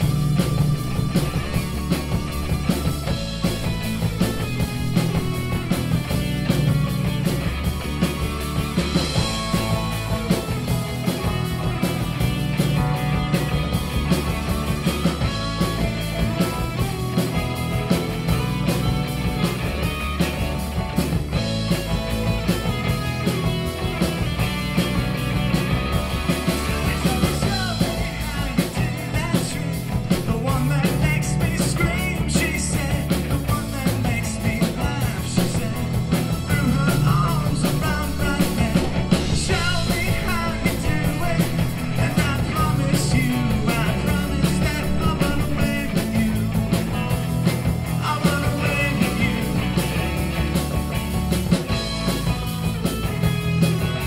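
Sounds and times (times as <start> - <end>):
live rock band playing: 0.0 - 54.0
voices singing: 24.5 - 50.3.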